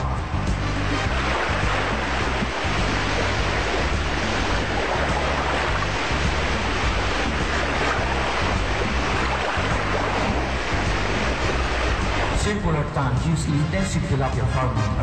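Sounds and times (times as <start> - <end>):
background music: 0.0 - 15.0
water splashing in fish tank: 0.7 - 12.6.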